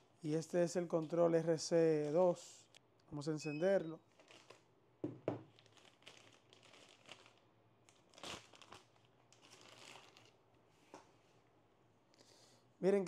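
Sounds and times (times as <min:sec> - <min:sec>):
plastic packaging crinkling: 0:04.0 - 0:04.7, 0:05.4 - 0:10.4.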